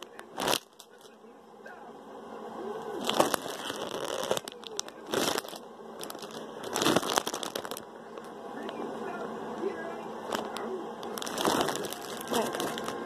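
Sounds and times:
plastic bags crinkling: 0.0s - 1.2s, 3.0s - 8.3s, 10.2s - 13.0s.

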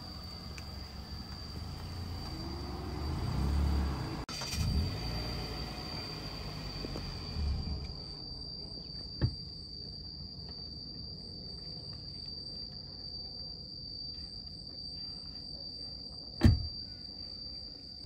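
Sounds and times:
insects chirring: 0.0s - 18.0s
pulsed insect chirps: 0.0s - 18.0s
car door thumping shut: 16.4s - 16.7s.

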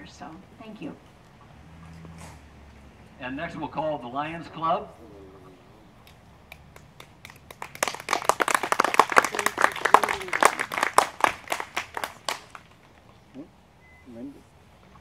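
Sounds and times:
audience clapping: 6.5s - 12.8s.

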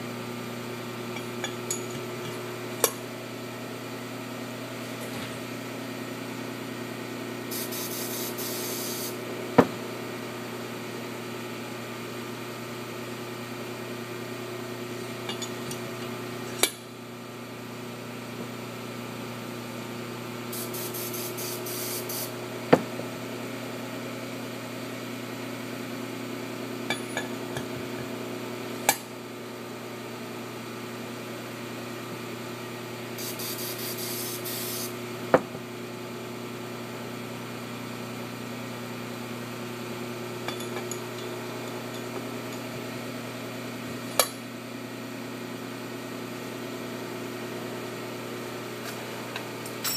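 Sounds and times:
workshop hum: 0.0s - 49.9s.

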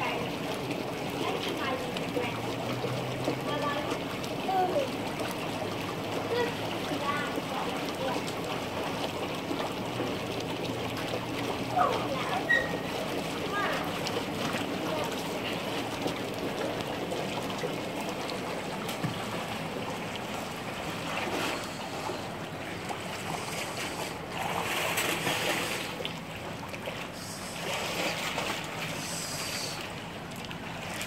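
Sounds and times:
pool water lapping: 0.0s - 31.0s.

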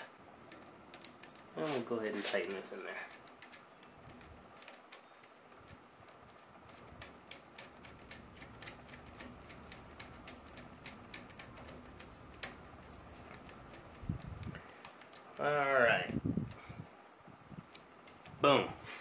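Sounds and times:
ratchet clicking: 6.7s - 14.8s.

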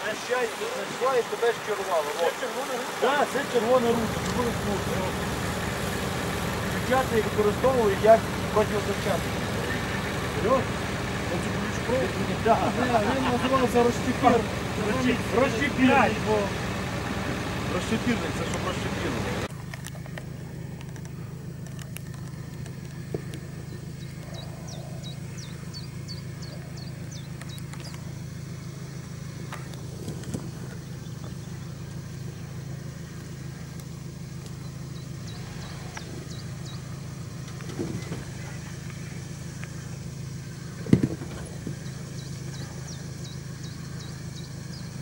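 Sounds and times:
truck engine at low revs: 0.0s - 45.0s
tyres and suspension knocking: 34.0s - 44.6s.

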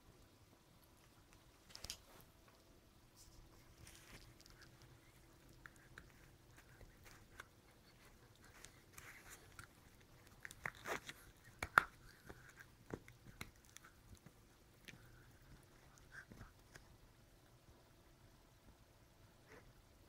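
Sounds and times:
dog gnawing chew stick: 3.6s - 16.9s.

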